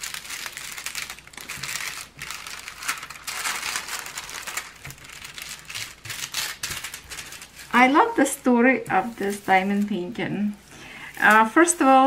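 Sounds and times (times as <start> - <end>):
plastic film crinkling: 0.0 - 12.0.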